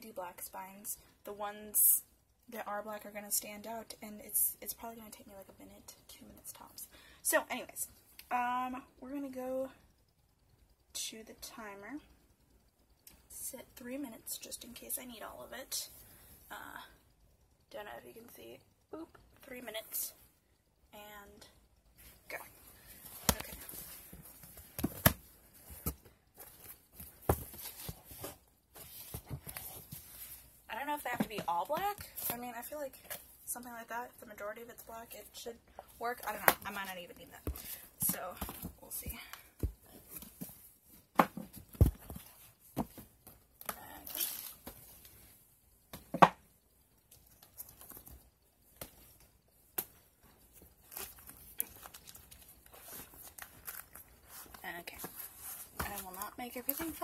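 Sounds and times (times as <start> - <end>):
light rustling of books: 22.0 - 33.4, 47.0 - 57.0
books knocking and thudding: 23.2 - 29.8, 41.1 - 43.1, 45.9 - 46.4.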